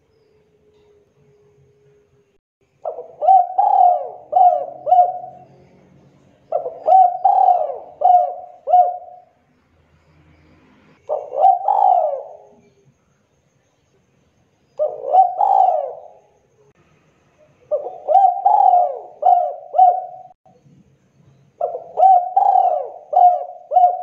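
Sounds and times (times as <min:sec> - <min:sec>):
dove cooing: 0:02.8 - 0:05.6, 0:06.4 - 0:09.4, 0:11.0 - 0:12.8, 0:14.8 - 0:16.3, 0:17.7 - 0:20.4, 0:21.6 - 0:24.0.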